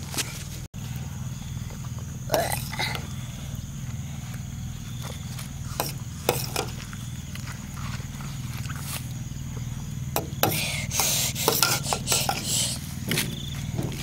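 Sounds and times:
steady low hum: 0:00.0 - 0:14.0
spoon scraping metal tray: 0:05.8 - 0:06.8, 0:10.4 - 0:12.8.

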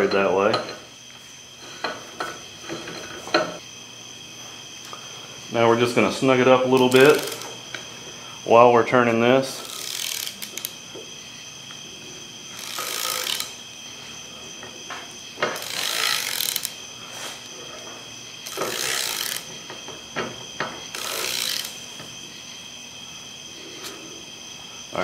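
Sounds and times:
ratchet wrench rasping: 0:06.8 - 0:07.5, 0:09.5 - 0:10.8, 0:12.5 - 0:13.6, 0:15.5 - 0:16.8, 0:18.4 - 0:19.5, 0:20.8 - 0:21.9
ratchet clicks: 0:06.8 - 0:07.6, 0:09.6 - 0:10.8, 0:12.6 - 0:13.6, 0:15.6 - 0:16.8, 0:18.4 - 0:19.5, 0:20.9 - 0:21.8.

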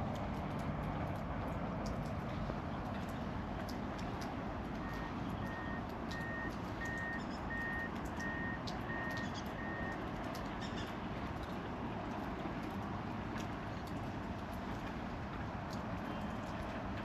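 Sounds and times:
reversing alarm beeps: 0:04.8 - 0:10.0.

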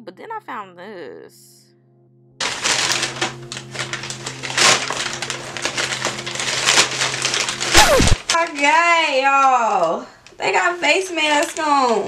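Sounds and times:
crumpled newspaper crinkling: 0:02.4 - 0:12.0.

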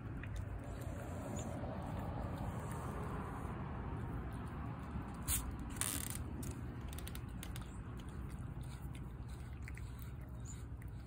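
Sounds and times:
cat chewing wet food: 0:06.6 - 0:11.0.

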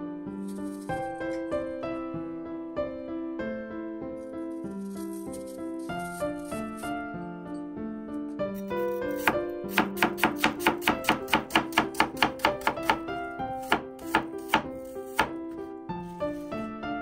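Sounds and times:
knife chopping on cutting board: 0:08.6 - 0:15.4, 0:16.3 - 0:16.7.

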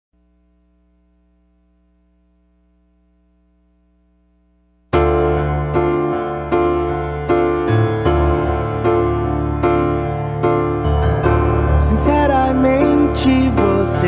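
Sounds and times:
keyboard chords: 0:04.9 - 0:14.0.

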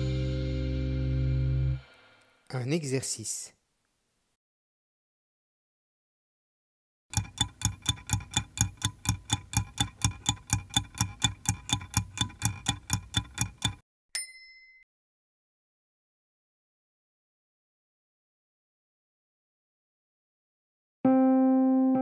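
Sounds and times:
stopwatch ticking: 0:07.1 - 0:13.8
timer ding: 0:13.4 - 0:14.9.

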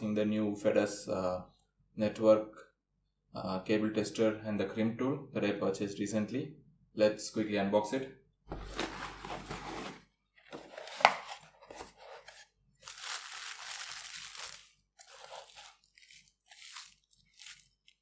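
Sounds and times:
cardboard box being opened: 0:08.5 - 0:17.6
bubble wrap rustling and crinkling: 0:10.6 - 0:18.0.

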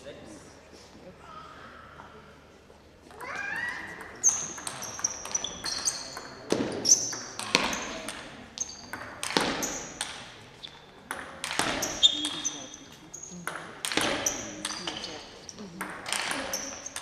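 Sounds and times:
table tennis ball clicking: 0:04.0 - 0:12.6, 0:13.2 - 0:15.1.

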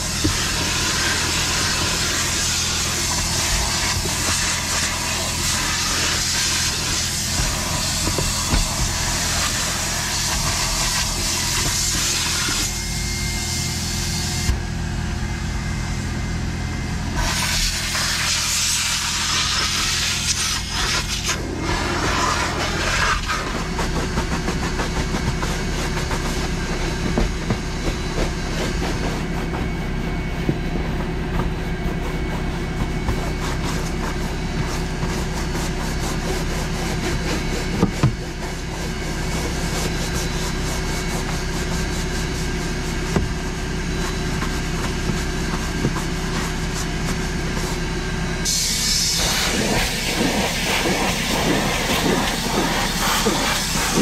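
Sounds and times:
brush scrubbing rubber mat: 0:00.0 - 0:12.8, 0:17.2 - 0:48.6, 0:49.2 - 0:54.0
vacuum motor humming: 0:00.0 - 0:54.0.

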